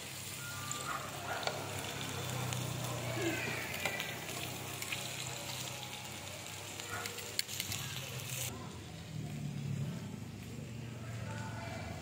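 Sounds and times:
meat sizzling on grill pan: 0:00.0 - 0:08.5.

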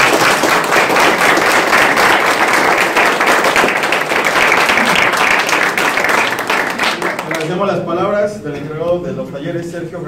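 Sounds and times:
people applauding: 0:00.0 - 0:07.7.

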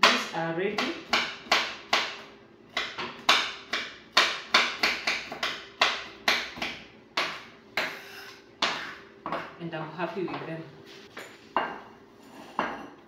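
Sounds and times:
knife chopping on work surface: 0:00.0 - 0:08.0, 0:08.6 - 0:09.5.

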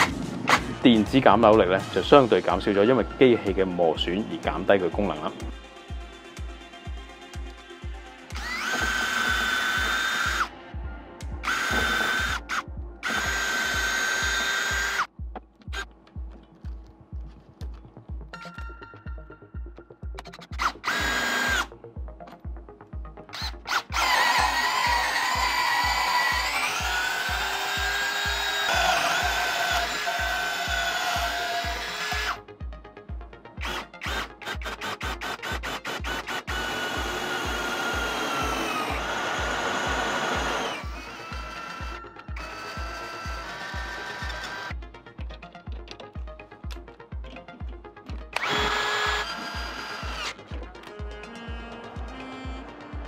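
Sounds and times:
background music with beat: 0:00.0 - 0:53.0
drill whining in bursts: 0:08.3 - 0:10.5, 0:11.4 - 0:15.1, 0:20.5 - 0:21.7, 0:23.3 - 0:32.4, 0:33.6 - 0:44.8, 0:48.3 - 0:53.0.

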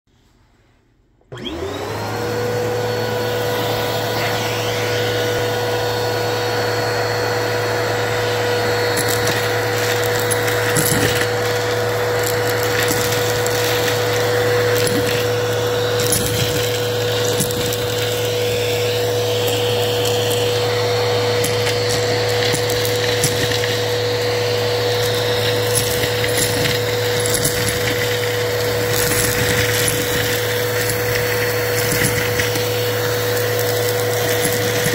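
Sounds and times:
vacuum cleaner motor whine: 0:01.2 - 0:34.9
small pieces rattling into vacuum: 0:08.0 - 0:34.9.

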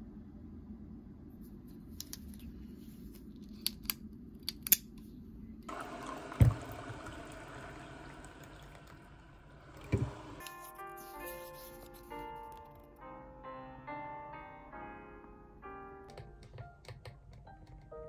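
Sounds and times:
water pouring into a mug: 0:05.7 - 0:10.5
music: 0:10.4 - 0:18.0.

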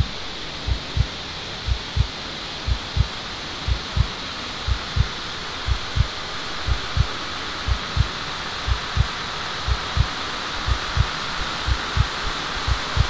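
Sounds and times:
steady hiss: 0:00.0 - 0:13.0
heartbeat thumps: 0:00.7 - 0:01.1, 0:01.7 - 0:02.1, 0:02.7 - 0:03.1, 0:03.7 - 0:04.1, 0:04.7 - 0:07.1, 0:07.7 - 0:08.1, 0:08.7 - 0:10.1, 0:10.7 - 0:13.0.

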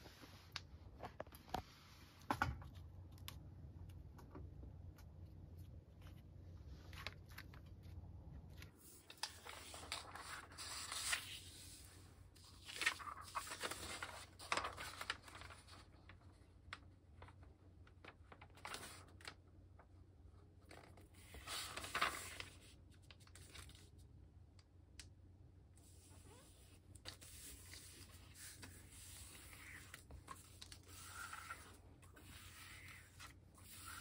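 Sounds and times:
paper crinkling: 0:05.9 - 0:19.4, 0:20.6 - 0:24.0, 0:27.0 - 0:34.0
paper rustling and sliding: 0:06.0 - 0:16.3, 0:20.9 - 0:22.8, 0:25.8 - 0:34.0.

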